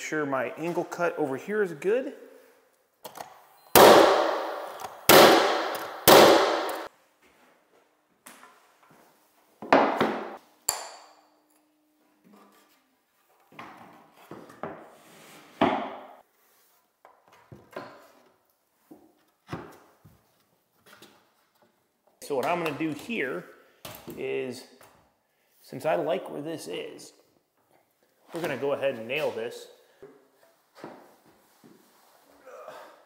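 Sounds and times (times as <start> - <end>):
loud sharp knocks: 3.8 - 6.9.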